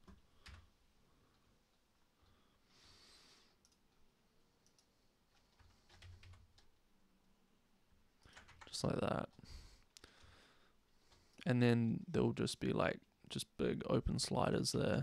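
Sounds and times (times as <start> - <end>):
keyboard and mouse clicks: 4.6 - 6.7.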